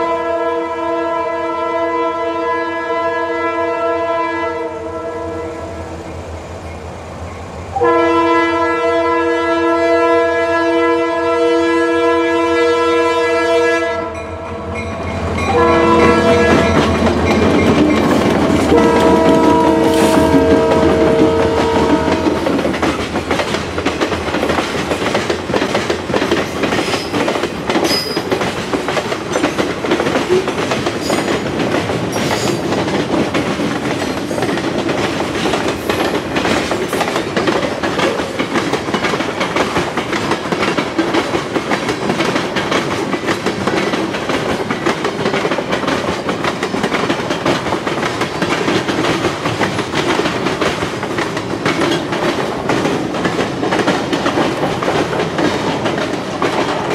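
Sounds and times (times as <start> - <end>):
freight train wheels clicking: 14.8 - 56.9.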